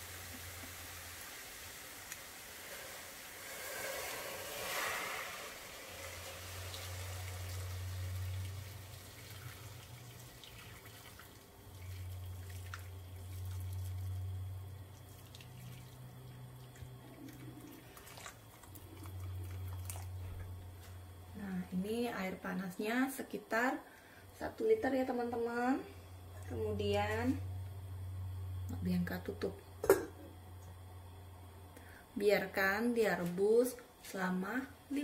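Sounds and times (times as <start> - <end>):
hot water pouring into a pot: 0.0 - 20.2.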